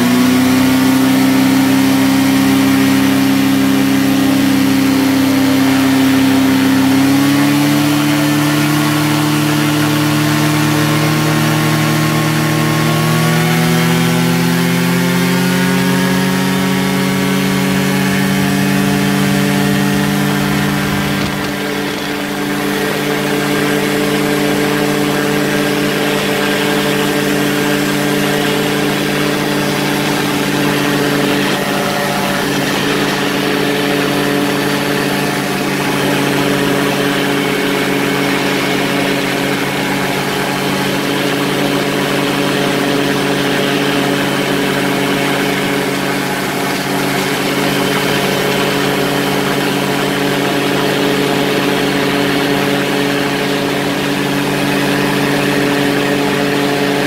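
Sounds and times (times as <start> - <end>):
ultralight engine and propeller: 0.0 - 57.0
wind rushing past: 18.1 - 25.0.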